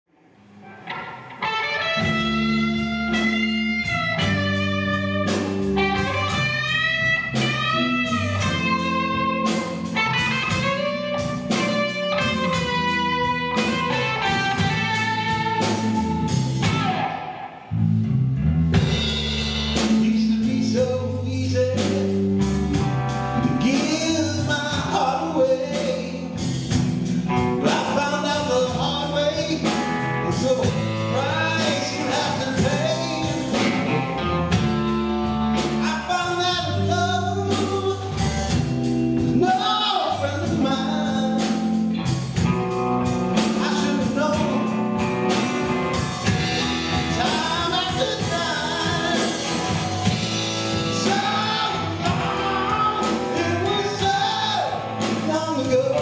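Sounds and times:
rock band playing blues: 0.5s - 56.0s.

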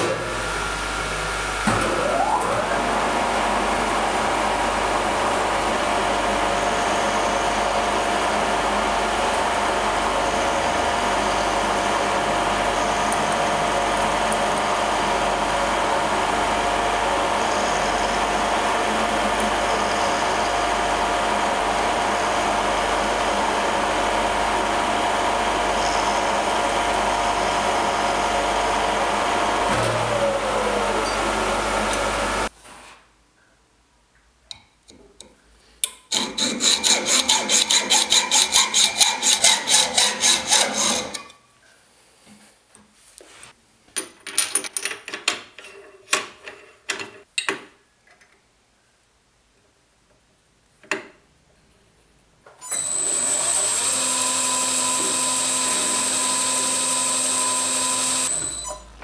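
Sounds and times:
machine motor running: 0.0s - 32.5s, 52.7s - 59.0s
milling machine spindle running: 0.2s - 32.5s, 52.7s - 58.8s.

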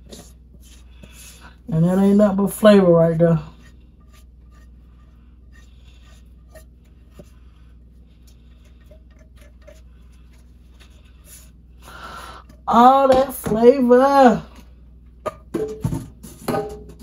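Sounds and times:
spatula scraping frying pan: 3.5s - 7.4s, 8.4s - 10.9s.

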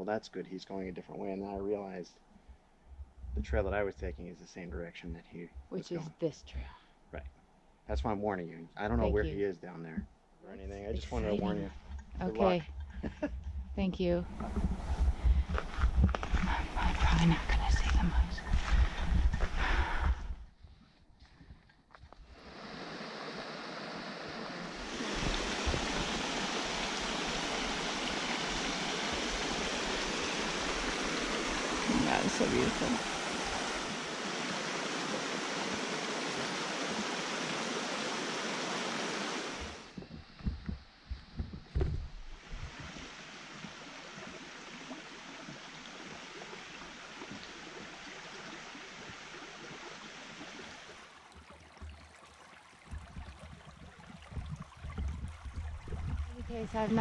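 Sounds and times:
low bumps and rumbles: 10.0s - 20.7s, 39.8s - 43.0s, 52.9s - 57.0s
brook water rushing: 14.2s - 20.3s, 22.3s - 40.0s, 42.3s - 57.0s
water rushing over rocks: 22.4s - 40.0s.

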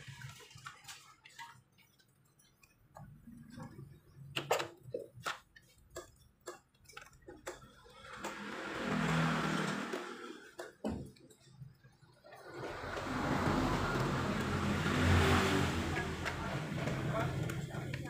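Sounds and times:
motor vehicle engine: 8.0s - 10.8s, 12.5s - 18.0s.

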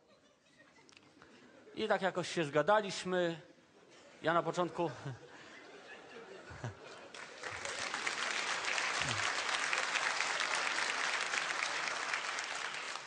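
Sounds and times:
audience applauding: 7.1s - 13.0s.

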